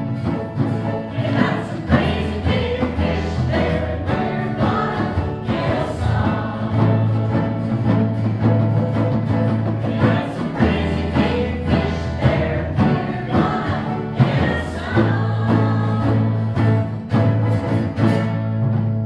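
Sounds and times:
acoustic guitar: 0.0 - 19.0
banjo: 0.0 - 19.0
steady bass line: 0.0 - 19.0
small mixed choir singing: 0.8 - 8.0, 9.6 - 17.0.

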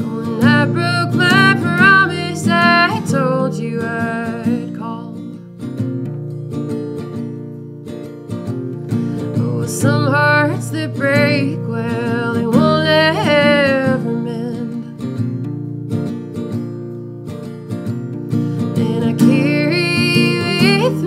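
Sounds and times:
woman singing: 0.0 - 5.4, 9.2 - 15.1, 18.6 - 21.0
acoustic guitar strumming: 0.0 - 21.0.

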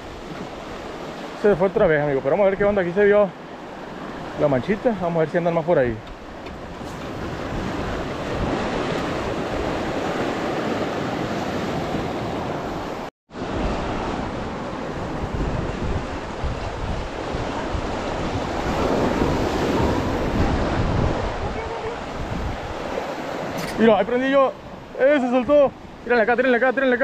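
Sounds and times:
wind buffeting microphone: 6.0 - 26.1.

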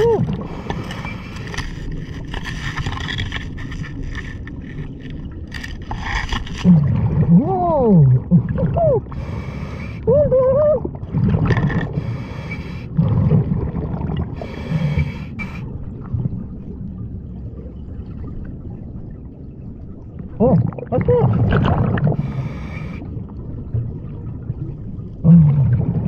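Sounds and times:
low bubbling exhale: 6.6 - 16.5, 20.3 - 23.4, 24.4 - 26.0
muffled voice sounds: 7.3 - 9.0
hissing regulator inhalations: 11.9 - 12.9, 14.4 - 15.6, 22.2 - 23.0.

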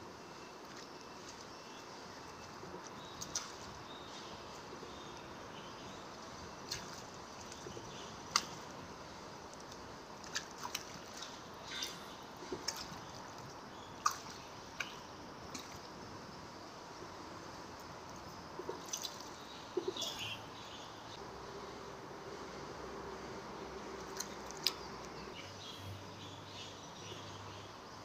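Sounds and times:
water dripping into river: 0.3 - 16.2, 16.9 - 20.3, 23.6 - 25.4.

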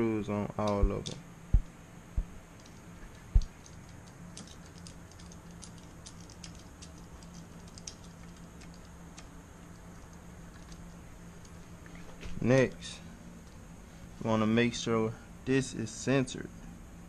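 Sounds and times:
steady low hum: 0.0 - 17.0
metallic clicks of screws and spokes: 2.6 - 11.6.

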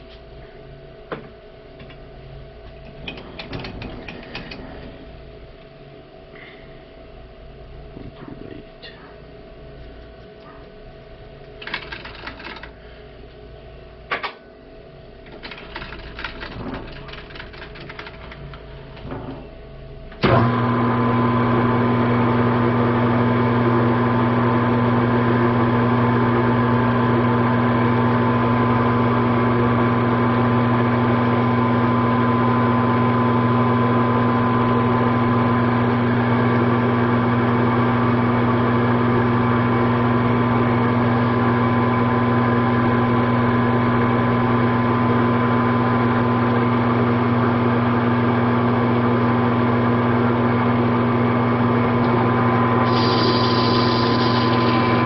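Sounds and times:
metal lathe running: 52.8 - 55.0.

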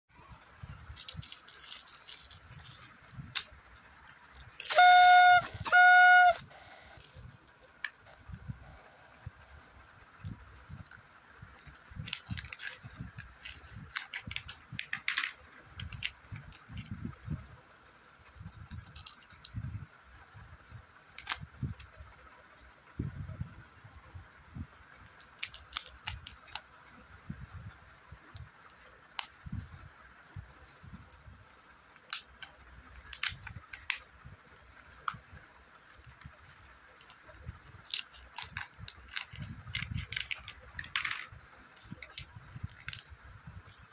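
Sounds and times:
foil wrapper crinkling: 1.0 - 3.5, 4.3 - 7.3, 12.0 - 15.3, 37.8 - 41.1, 41.8 - 43.1
horn honks: 4.7 - 6.5.

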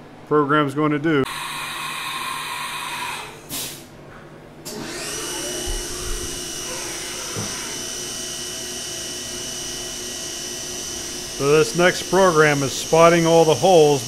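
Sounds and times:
short hiss: 3.5 - 3.9
spindle high whine: 4.6 - 14.0.

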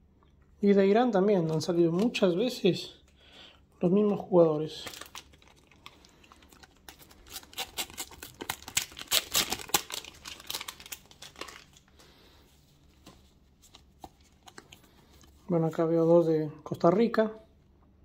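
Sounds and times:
wrapper tearing and crinkling: 4.7 - 12.0.

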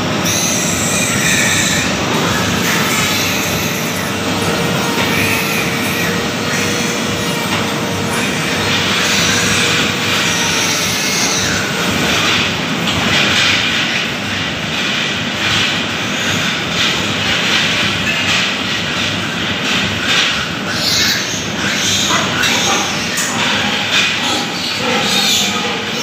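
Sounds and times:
ventilation fans roaring: 0.0 - 26.0
electric grinder whining: 0.2 - 12.6, 21.4 - 26.0.

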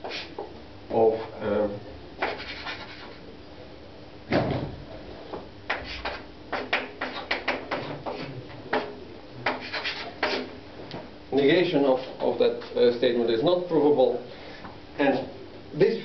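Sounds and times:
chalk writing on blackboard: 0.0 - 0.5, 2.2 - 3.2, 5.7 - 10.6
heavy knock on blackboard: 5.7 - 9.6.

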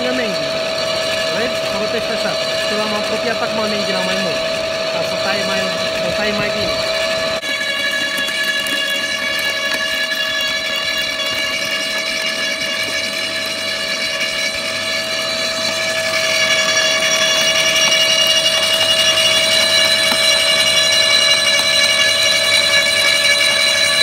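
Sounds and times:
garden shredder whining: 0.0 - 24.0.

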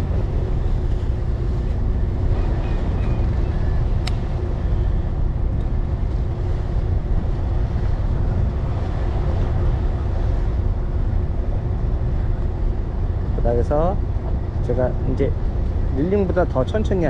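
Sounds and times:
boat engine humming: 0.0 - 17.0
wind buffeting microphone: 0.0 - 17.0
sharp click: 4.0 - 4.3.

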